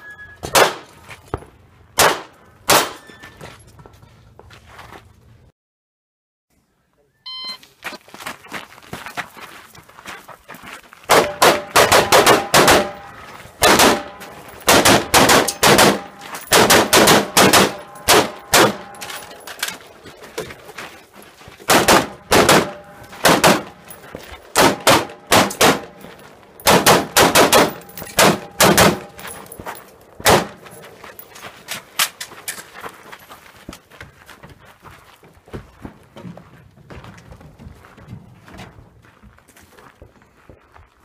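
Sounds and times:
rapid gunfire: 11.1 - 13.0, 13.6 - 18.9, 21.7 - 23.8, 24.5 - 25.9, 26.7 - 29.1
steel targets ringing: 11.2 - 20.0, 21.9 - 29.8.

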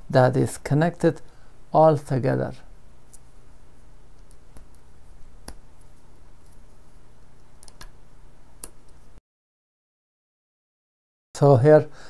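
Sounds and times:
low steady hum: 0.0 - 9.2.

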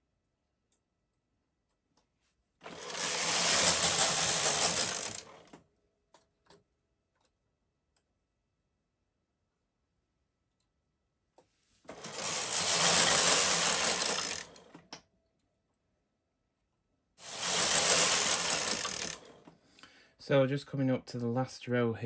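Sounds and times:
knitting machine carriage clatter: 2.6 - 5.6, 11.9 - 14.9, 17.2 - 19.5.

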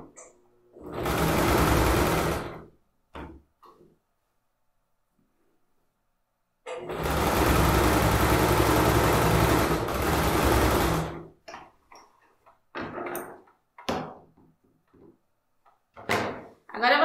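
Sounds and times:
sewing machine running: 0.8 - 2.7, 6.7 - 11.4.

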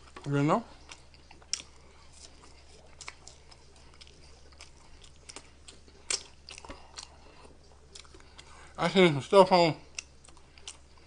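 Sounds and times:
chewing fries: 0.0 - 11.0
mouth clicks and smacks: 0.8 - 8.5.

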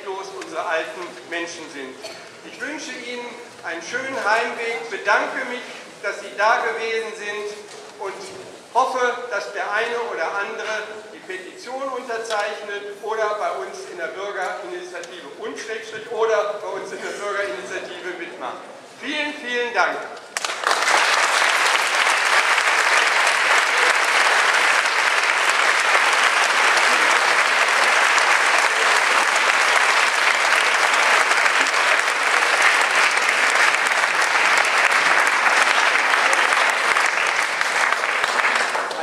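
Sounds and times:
large audience applauding: 20.4 - 39.0.

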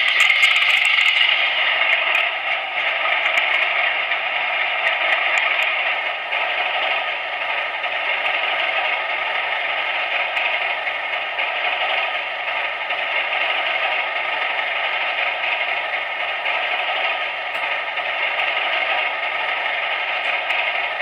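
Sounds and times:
diesel engine sound through small loudspeaker: 0.0 - 21.0.

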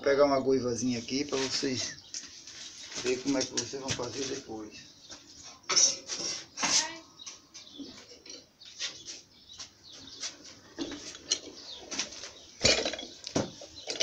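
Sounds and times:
tools knocking and clinking: 12.6 - 14.0.

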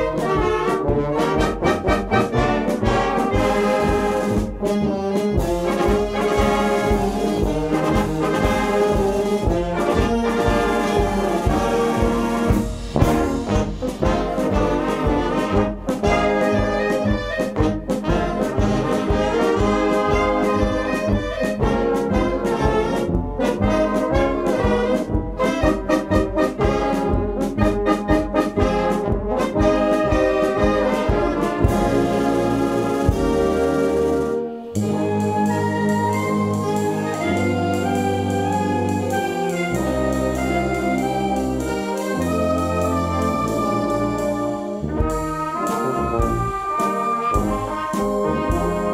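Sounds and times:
wind band playing: 0.0 - 48.9.

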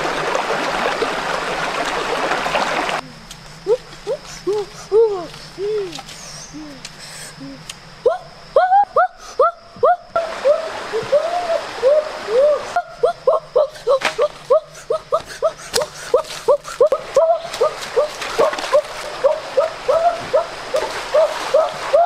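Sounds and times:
shallow stream trickling: 0.0 - 3.0, 15.9 - 22.0
animal calling: 7.4 - 22.0.

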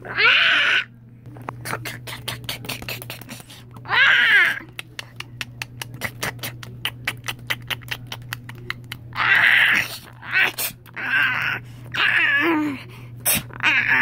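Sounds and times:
child growling roars: 9.2 - 12.8.

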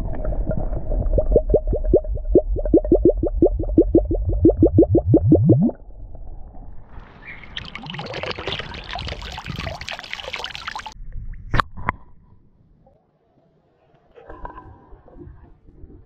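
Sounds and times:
water glugging into bottle: 0.0 - 5.8, 7.4 - 11.0
water splashing onto lake: 7.1 - 11.0.

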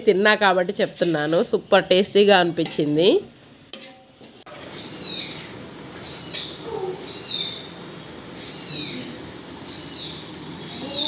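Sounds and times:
small animal high call: 6.6 - 7.5.

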